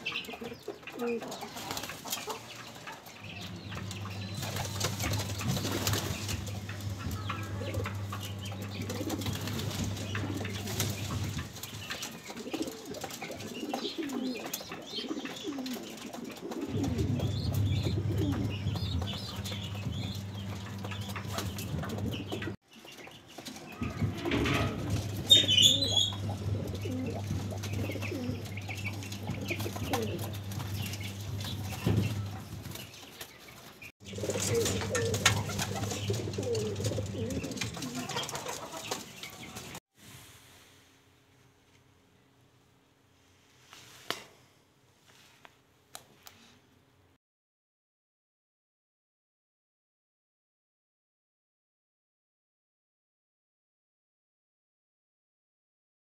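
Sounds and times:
pigeons cooing and shuffling: 0:00.1 - 0:39.8
wings flapping: 0:01.2 - 0:02.5, 0:03.7 - 0:22.6, 0:23.3 - 0:39.8
steady low hum: 0:24.7 - 0:32.8.

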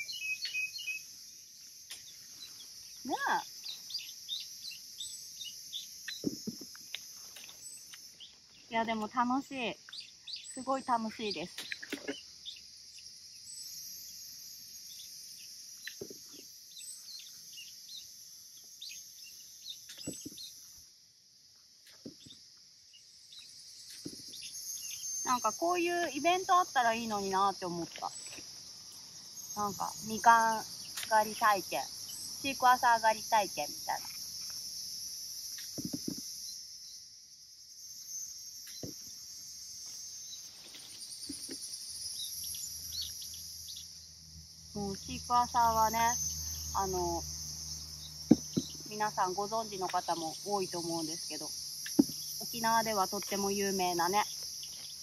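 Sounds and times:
bird chirps: 0:00.0 - 0:20.8, 0:22.0 - 0:26.2, 0:37.8 - 0:55.0
high insect drone: 0:00.0 - 0:55.0.

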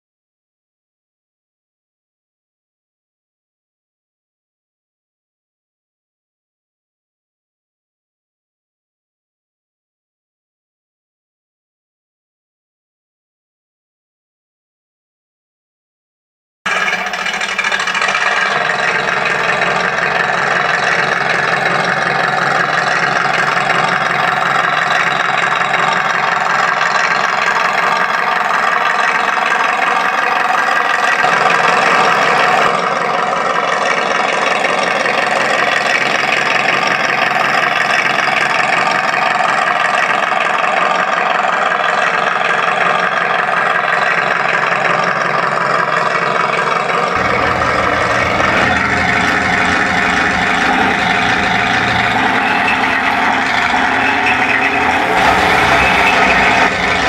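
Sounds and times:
simulated tank engine idling: 0:16.7 - 0:57.0.

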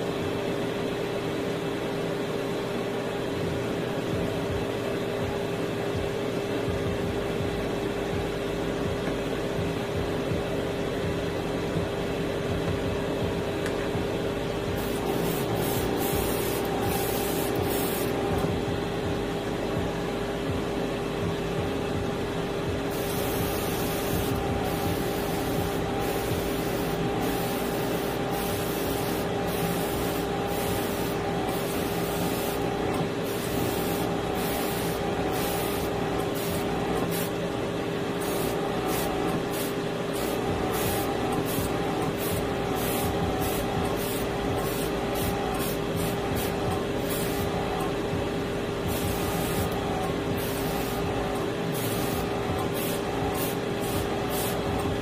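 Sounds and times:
steady motor hum: 0:00.0 - 0:55.0
airbrush spraying hiss: 0:14.7 - 0:18.5, 0:22.9 - 0:37.4, 0:38.1 - 0:47.8, 0:48.8 - 0:54.9.

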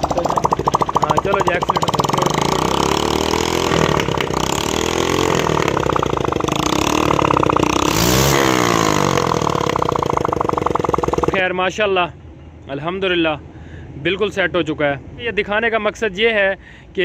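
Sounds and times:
motorcycle engine revving: 0:00.0 - 0:11.4.

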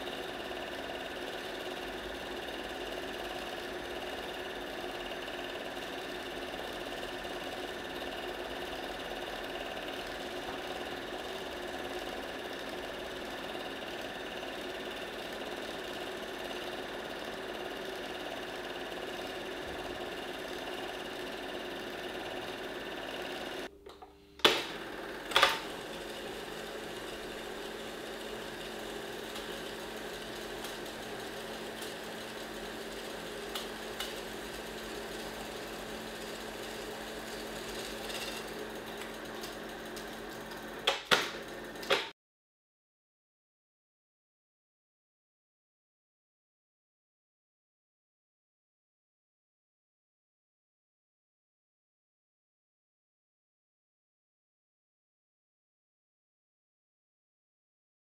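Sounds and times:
film projector whirring: 0:00.0 - 0:42.2.

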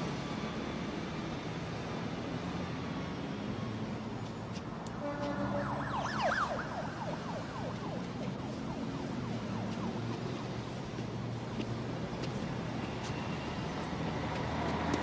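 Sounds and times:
street traffic noise: 0:00.0 - 0:15.0
low held tones: 0:05.0 - 0:07.9
warbling siren-like chirps: 0:05.0 - 0:08.9.

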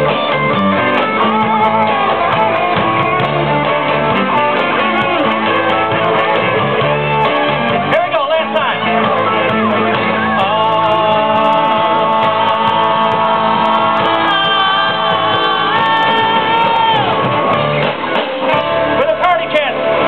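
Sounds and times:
live band playing: 0:00.0 - 0:20.0
people singing: 0:10.2 - 0:17.1.

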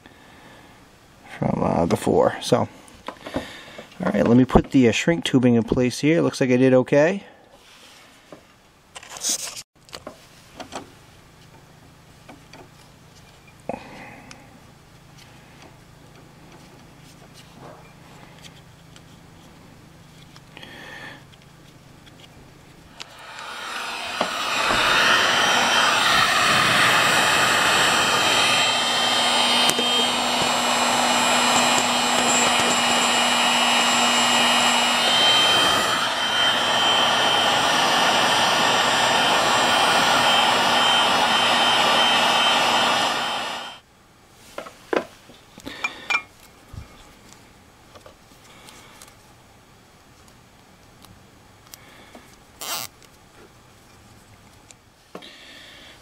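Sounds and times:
heat gun blowing hot air: 0:22.9 - 0:43.8.

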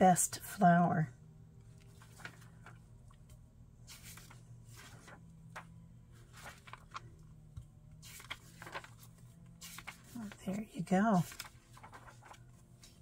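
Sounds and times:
low steady hum: 0:00.0 - 0:13.0
paper pages rustling: 0:01.7 - 0:02.9, 0:03.9 - 0:07.3, 0:08.0 - 0:13.0.

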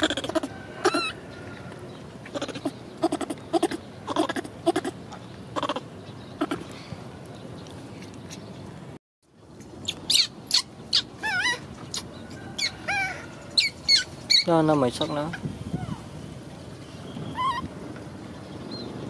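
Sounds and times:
baby monkey calling: 0:00.0 - 0:01.2, 0:02.3 - 0:05.0, 0:05.6 - 0:06.7, 0:09.8 - 0:16.1, 0:17.2 - 0:17.7.

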